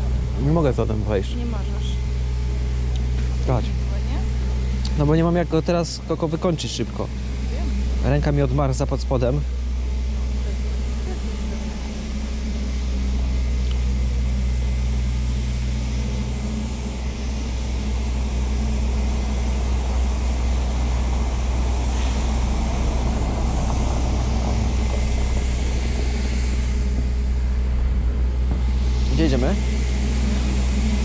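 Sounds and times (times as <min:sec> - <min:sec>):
faint street background: 0:00.0 - 0:31.0.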